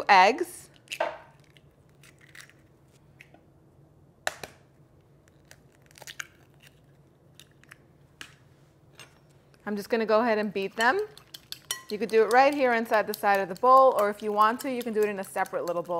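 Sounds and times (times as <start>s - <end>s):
eggshell cracking: 5.2s - 7.8s
shell crackling apart: 5.2s - 7.8s.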